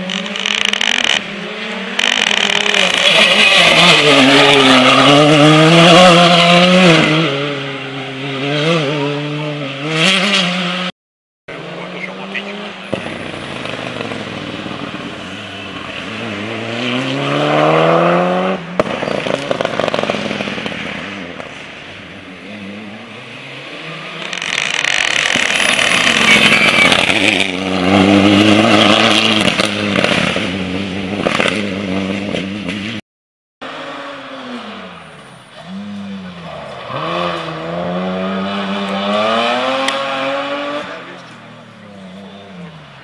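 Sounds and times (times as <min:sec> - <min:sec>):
rally car engine revving hard: 0:00.1 - 0:10.9, 0:15.9 - 0:21.1, 0:22.5 - 0:33.0, 0:35.6 - 0:42.7
tyre squeal: 0:24.4 - 0:27.6.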